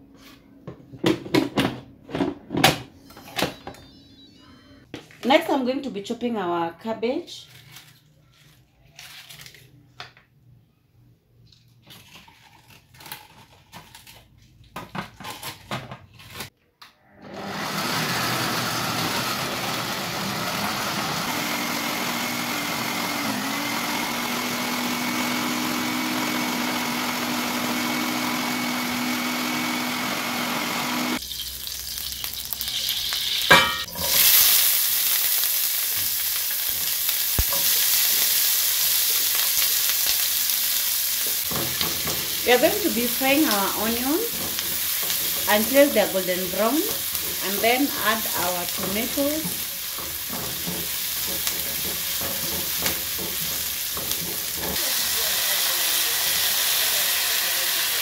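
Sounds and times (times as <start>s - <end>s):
food processor shredding cabbage: 17.1s - 31.2s, 37.2s - 58.0s
onions sizzling in oil: 30.6s - 58.0s.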